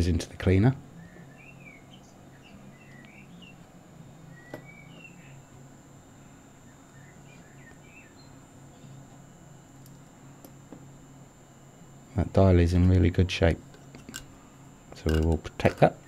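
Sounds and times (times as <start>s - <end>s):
steady low hum: 0.0s - 16.0s
faint birds chirping: 0.9s - 10.4s.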